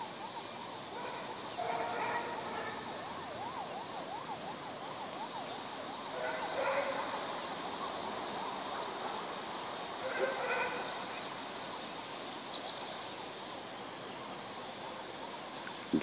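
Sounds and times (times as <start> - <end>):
emergency siren yelping: 0.0 - 8.6.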